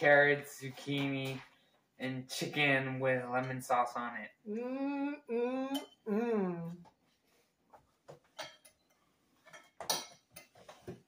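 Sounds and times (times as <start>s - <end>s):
cutlery and plates clinking: 8.2s - 11.0s.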